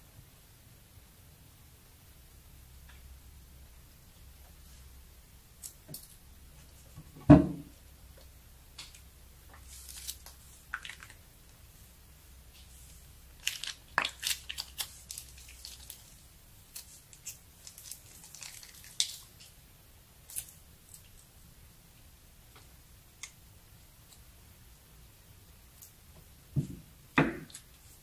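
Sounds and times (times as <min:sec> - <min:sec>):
plastic piping bag crinkling: 0:09.5 - 0:11.3, 0:12.6 - 0:19.6.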